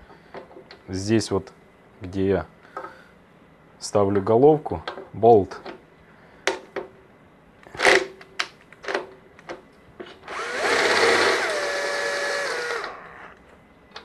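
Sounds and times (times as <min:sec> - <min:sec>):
cordless drill motor spinning: 0:10.2 - 0:13.4.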